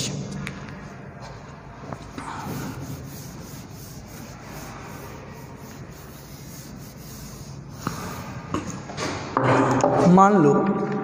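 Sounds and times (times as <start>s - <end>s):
whiteboard being wiped: 2.0s - 8.7s.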